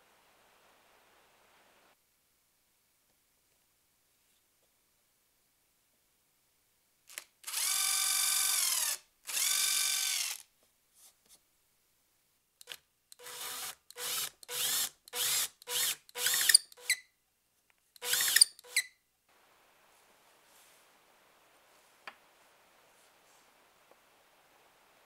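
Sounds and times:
cordless drill drilling into wood: 7.1s - 10.4s, 12.6s - 17.0s, 18.0s - 18.9s.

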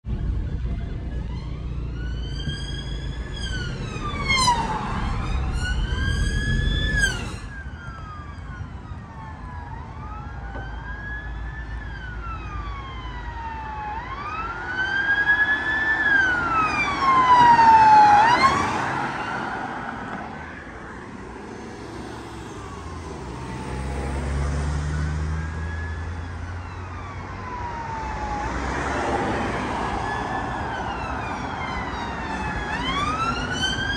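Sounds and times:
sirens wailing: 0.1s - 33.9s
siren yelp: 0.2s - 20.0s, 24.8s - 33.9s.

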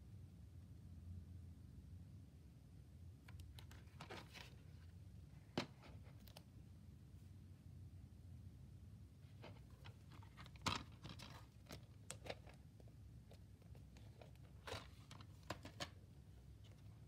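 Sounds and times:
plastic case clicks and rustles: 9.4s - 12.6s, 13.3s - 16.0s.

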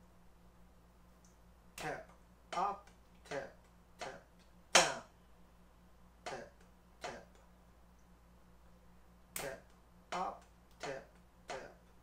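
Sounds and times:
drumsticks striking practice pad: 4.0s - 5.1s.

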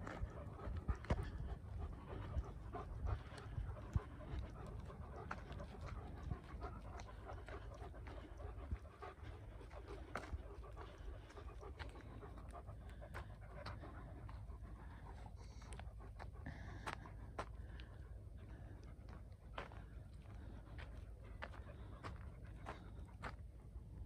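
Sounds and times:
dog panting: 0.0s - 24.0s
low rumble: 0.0s - 24.0s
footsteps on dirt: 16.2s - 23.9s.

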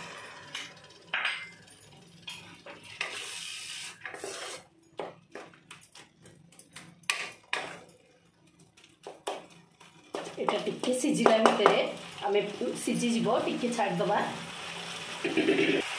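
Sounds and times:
spatula scraping pan: 2.7s - 4.7s
spatula knocking pan: 10.2s - 11.9s.

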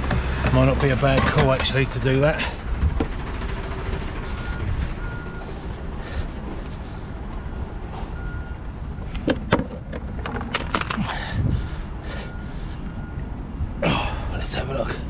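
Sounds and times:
truck diesel engine idling: 0.0s - 9.9s.

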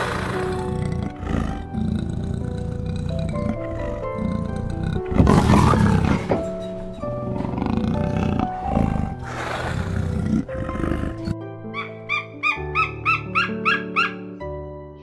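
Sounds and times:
jaguars growling: 0.0s - 11.4s
soft instrumental music: 0.0s - 15.0s.

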